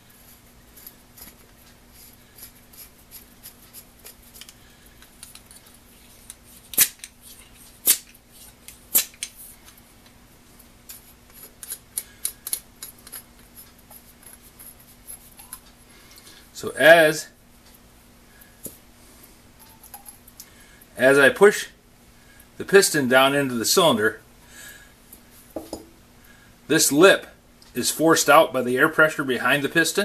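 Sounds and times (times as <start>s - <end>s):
metal parts clicking and tapping: 11.4s - 13.4s.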